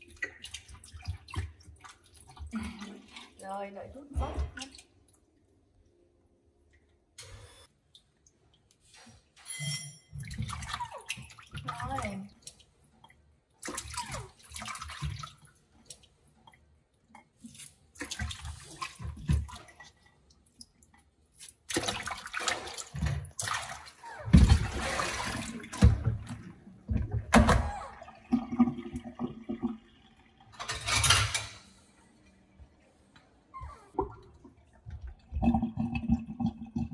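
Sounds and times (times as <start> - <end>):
water splashing in a steel sink: 0.0 - 5.4, 10.0 - 31.5.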